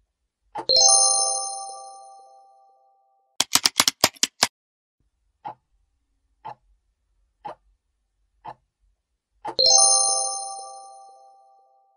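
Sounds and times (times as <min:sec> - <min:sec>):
timer ticking: 0:03.4 - 0:04.5.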